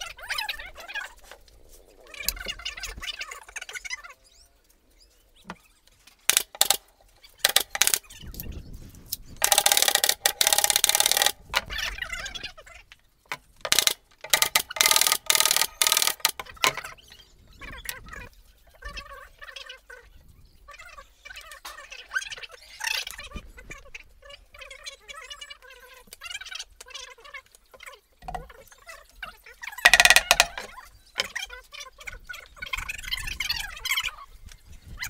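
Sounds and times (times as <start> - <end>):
knocks of plywood boards: 29.9 - 31.4.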